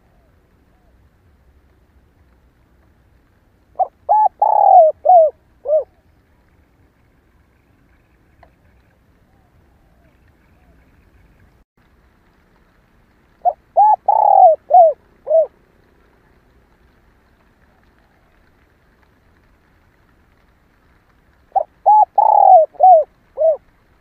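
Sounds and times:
dove cooing: 3.7s - 6.0s, 13.4s - 15.6s, 21.5s - 23.6s.

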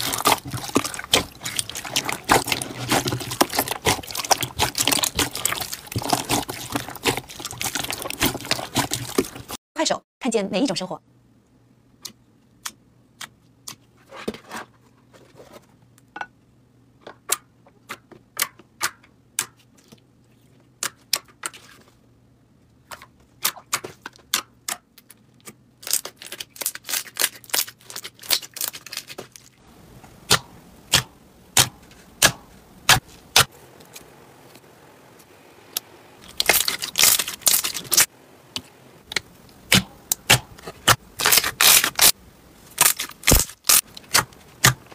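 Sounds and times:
slime squishing with sticky pops: 0.0s - 9.6s, 36.2s - 42.1s.

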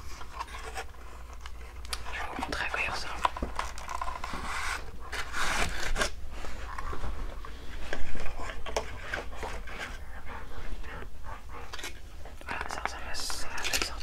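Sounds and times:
cardboard and plastic rubbing: 0.0s - 10.0s.

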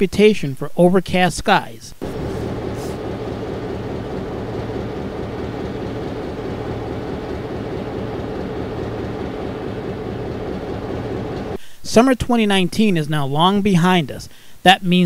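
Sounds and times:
diesel locomotive engine idling: 2.0s - 11.6s.

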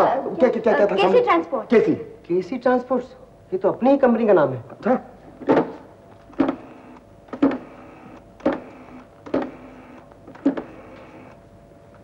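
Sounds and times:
rotary phone dial whirring and clicking: 6.2s - 11.4s.

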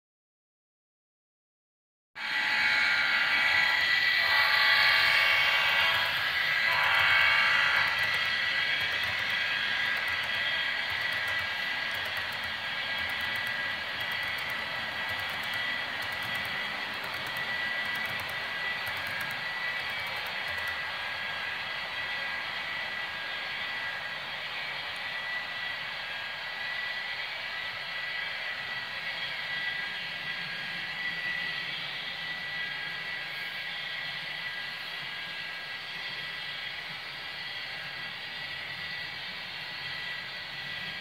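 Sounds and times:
horn-like tone: 2.2s - 8.1s
model train running: 2.2s - 41.0s
thin whine: 2.2s - 41.0s.

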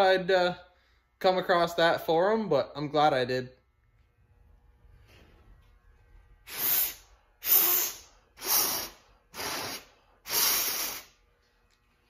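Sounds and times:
hissing puffs of breath: 6.5s - 11.2s.

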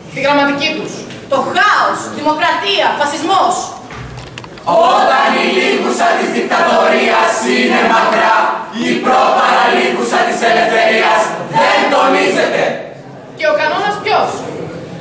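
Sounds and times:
young voices choir singing: 4.6s - 13.0s.

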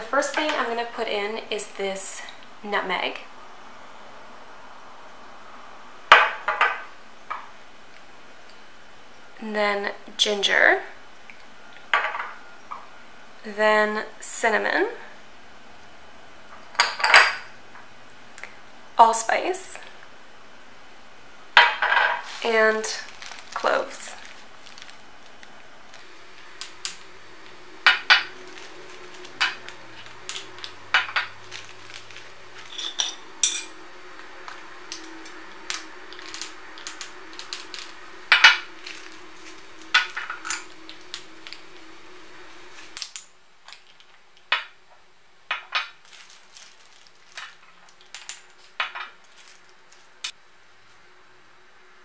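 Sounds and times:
metal spoon clinking on glass jars: 32.6s - 33.8s.

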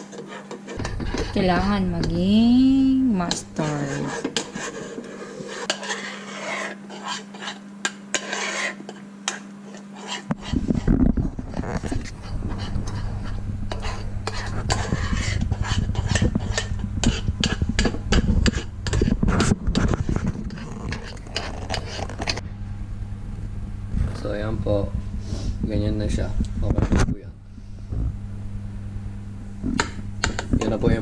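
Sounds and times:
metal spoon scraping a saucepan: 0.0s - 1.8s, 3.2s - 10.9s, 11.5s - 22.4s.

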